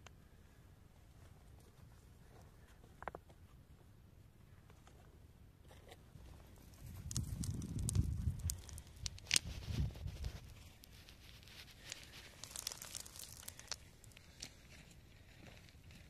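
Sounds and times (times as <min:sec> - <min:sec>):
soil crumbling onto rocks: 0:06.5 - 0:16.0.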